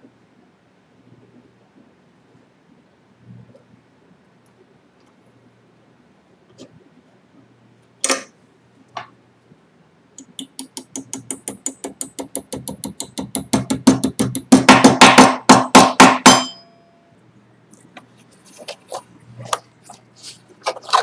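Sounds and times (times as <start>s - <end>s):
hammer striking metal wire: 10.2s - 16.8s.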